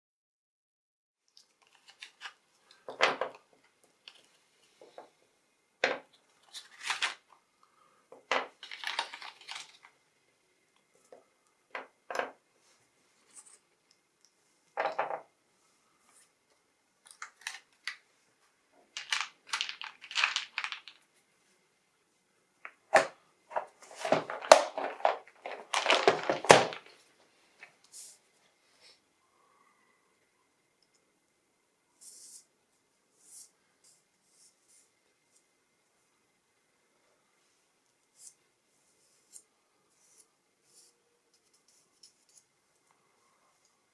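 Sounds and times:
rustling and clatter: 23.5 - 27.0.

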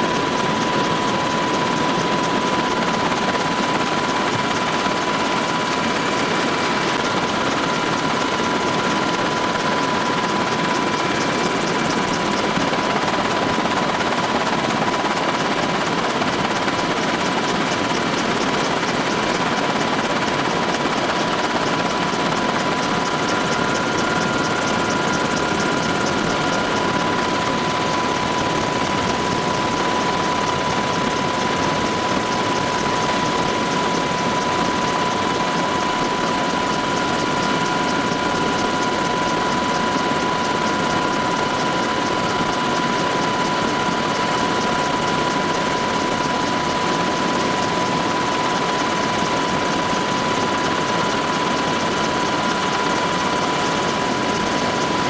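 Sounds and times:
helicopter rotor and engine noise: 0.0 - 55.0.

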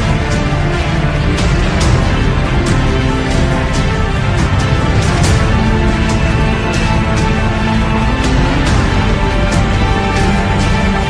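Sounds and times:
music with chords and percussion: 0.0 - 11.0.

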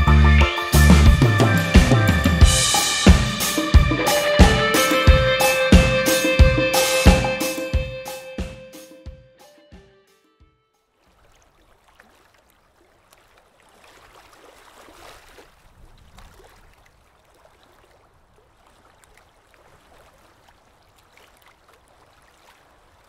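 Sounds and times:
water trickling: 10.9 - 23.0.

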